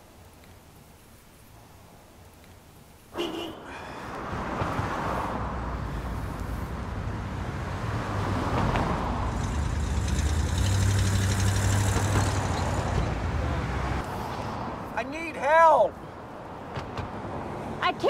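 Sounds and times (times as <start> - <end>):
cars driving past: 3.1 - 15.4.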